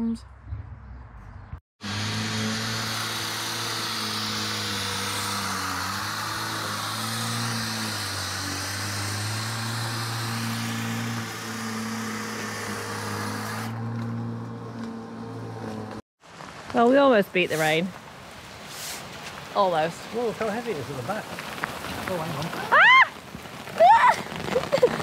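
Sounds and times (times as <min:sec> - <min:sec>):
electric hedge trimmer running: 0:01.8 - 0:15.6.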